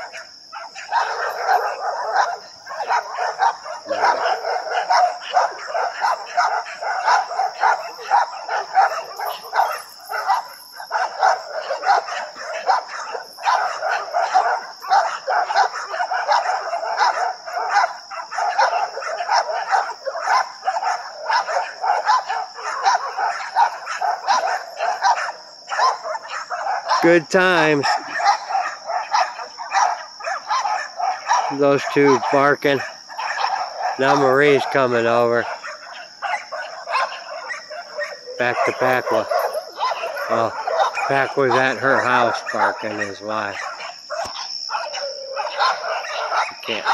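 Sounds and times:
dogs barking rapidly: 0:00.0 - 0:46.9.

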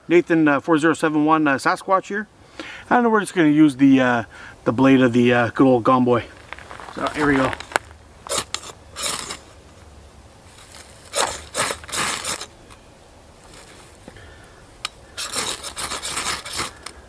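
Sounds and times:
knife scraping ferrocerium rod: 0:10.7 - 0:12.5, 0:15.2 - 0:17.0.

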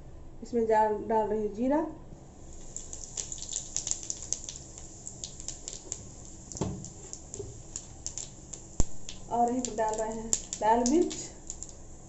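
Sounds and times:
seeds sizzling in hot oil: 0:02.3 - 0:12.0
sharp crackling pops: 0:02.5 - 0:12.0
dull thump: 0:06.6 - 0:07.5.

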